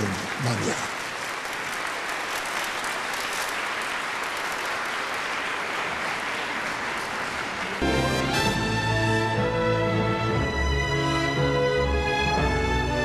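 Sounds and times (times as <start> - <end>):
crowd applauding: 0.0 - 8.7
orchestral music: 7.8 - 13.0.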